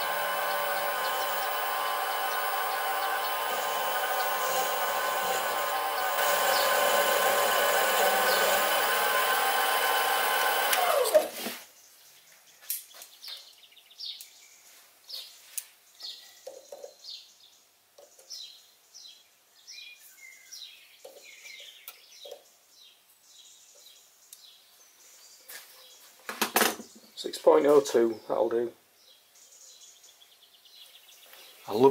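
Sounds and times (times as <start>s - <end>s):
lathe whine spinning down: 0.0s - 11.3s.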